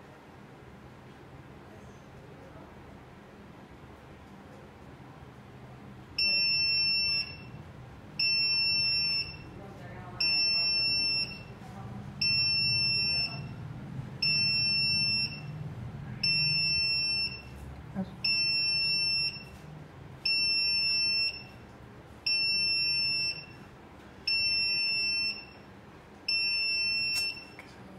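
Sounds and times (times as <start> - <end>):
high-pitched alarm beeps: 6.2 - 7.6, 8.2 - 9.6, 10.2 - 11.6, 12.2 - 13.6, 14.2 - 15.6, 16.2 - 17.6, 18.2 - 19.6, 20.2 - 21.6, 22.2 - 23.7, 24.3 - 25.7, 26.3 - 27.6.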